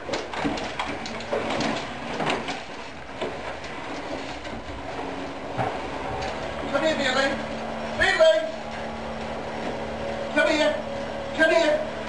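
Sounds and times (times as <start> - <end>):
knocks and rattles: 0.0 - 6.6
electric scooter motor humming: 0.4 - 12.0.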